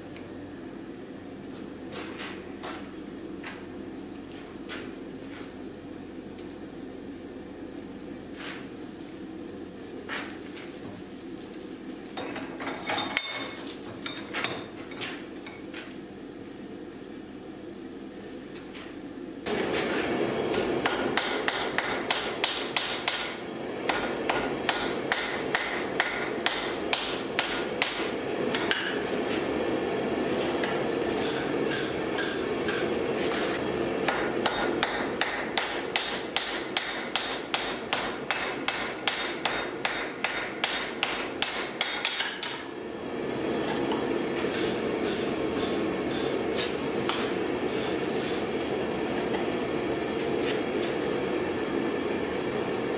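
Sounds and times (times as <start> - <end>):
hammer striking steel on anvil: 20.5 - 29.0, 30.6 - 32.9, 34.0 - 42.7, 43.9 - 47.4.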